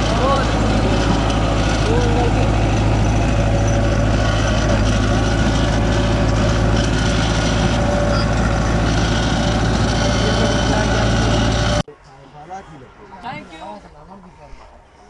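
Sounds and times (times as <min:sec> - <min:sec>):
tractor diesel engine running: 0:00.0 - 0:11.9.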